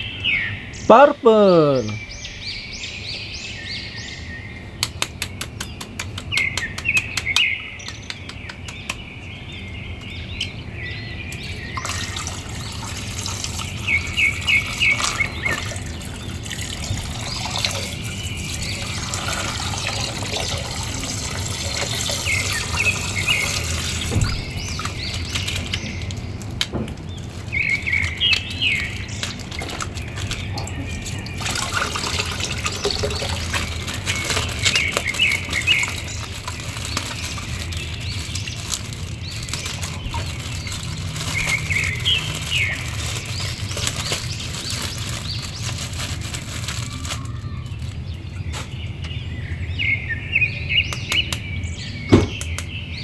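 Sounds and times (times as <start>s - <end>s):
small birds chirping: 0.0s - 53.0s
plastic bag rustling: 11.9s - 48.8s
water sloshing: 28.2s - 45.8s.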